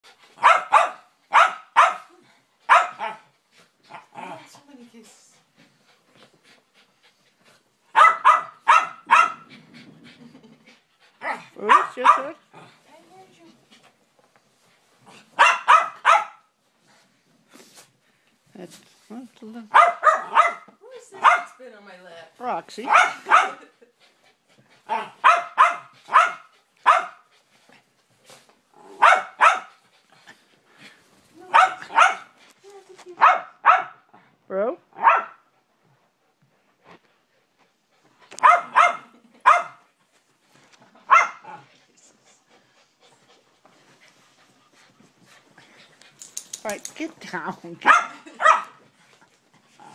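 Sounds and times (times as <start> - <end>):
small dogs barking: 0.4 - 2.1, 2.7 - 3.3, 7.9 - 9.5, 11.2 - 12.4, 15.4 - 16.5, 19.7 - 21.6, 22.8 - 23.8, 24.9 - 27.3, 28.9 - 29.7, 31.5 - 32.4, 33.2 - 34.1, 35.0 - 35.4, 38.4 - 39.8, 41.0 - 41.7, 47.8 - 48.8
small dog yapping: 38.4 - 39.7.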